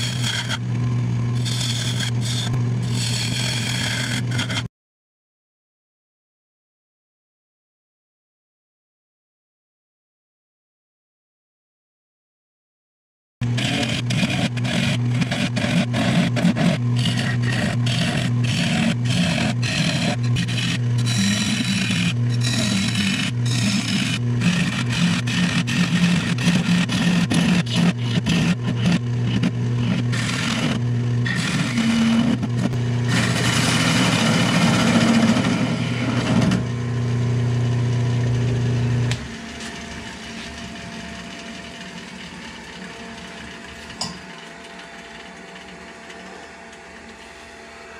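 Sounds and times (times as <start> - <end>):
gouge scraping spinning wood: 0.0 - 4.7, 13.4 - 36.8
quiet whir: 0.0 - 4.7, 13.5 - 47.9
wood lathe motor hum: 0.0 - 4.7, 13.4 - 47.9.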